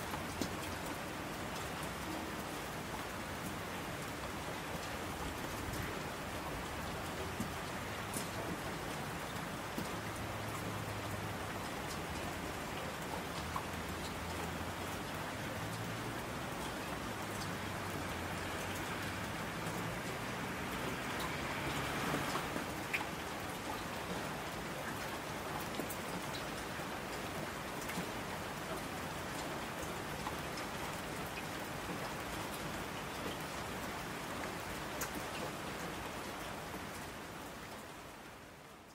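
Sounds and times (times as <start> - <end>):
steady rain: 0.0 - 38.9
raindrops ticking: 6.6 - 33.7.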